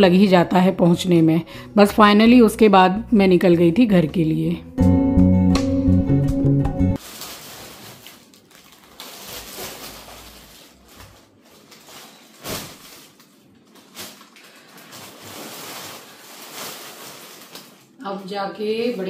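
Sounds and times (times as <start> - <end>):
bag rustling: 7.0 - 18.0.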